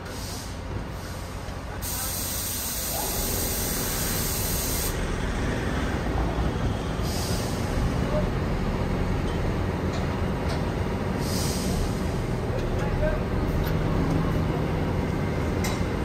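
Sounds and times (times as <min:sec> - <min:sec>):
loud air hiss: 0:00.0 - 0:05.0, 0:06.9 - 0:07.8, 0:11.2 - 0:12.2
crane engine and hydraulics: 0:00.0 - 0:16.0.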